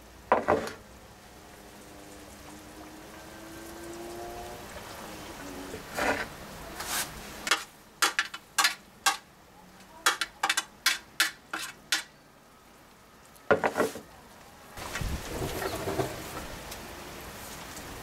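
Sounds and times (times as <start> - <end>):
utensils clinking on cookware: 10.1 - 12.1.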